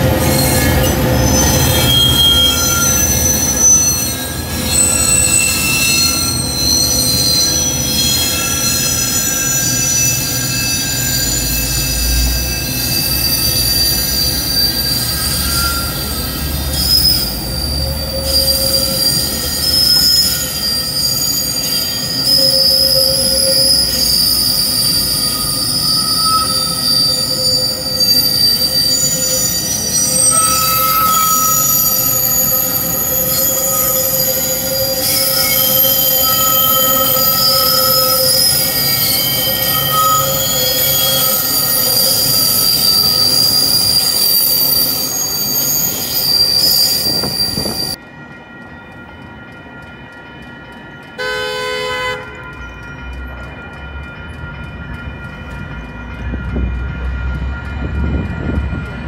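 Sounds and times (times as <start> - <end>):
train wheels squealing on rails: 0.0 - 59.0
train horn: 51.2 - 52.6.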